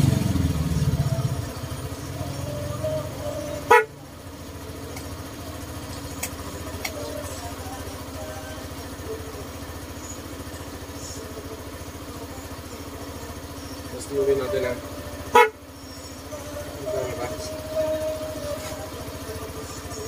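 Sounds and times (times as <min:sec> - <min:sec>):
scooter engine idling: 0:00.0 - 0:20.0
scooter horn toot: 0:02.4 - 0:04.2, 0:14.9 - 0:15.9.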